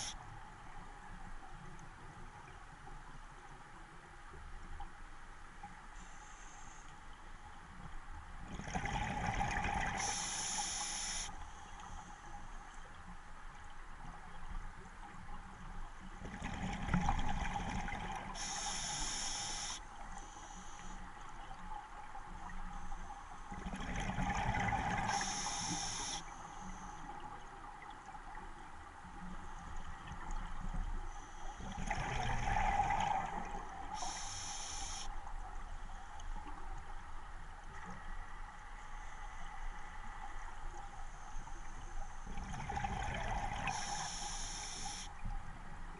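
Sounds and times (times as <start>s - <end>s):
exhaled bubbles gurgling underwater: 8.4s - 11.2s, 16.1s - 19.7s, 23.5s - 26.2s, 29.2s - 35.6s, 42.2s - 45.9s
regulator inhalation hiss: 10.0s - 11.6s, 18.4s - 21.0s, 25.1s - 26.9s, 33.9s - 35.2s, 43.7s - 45.1s.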